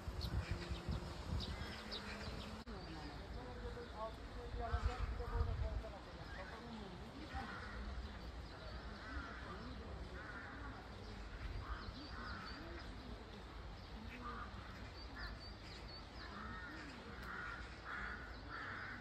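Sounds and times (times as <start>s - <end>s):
wind rumble on microphone: 0.0s - 18.2s
small birds chirping: 0.0s - 19.0s
crows cawing: 7.2s - 8.1s, 8.7s - 12.9s, 14.0s - 19.0s.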